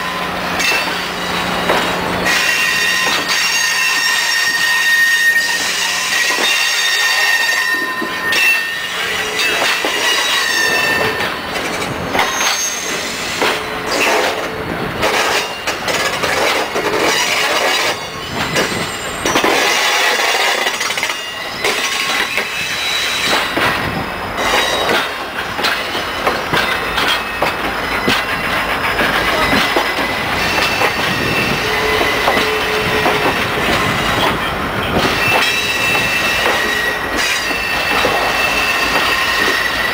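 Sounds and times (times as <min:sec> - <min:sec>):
train wheels squealing: 0:00.0 - 0:39.9
wheels clacking: 0:23.2 - 0:39.9.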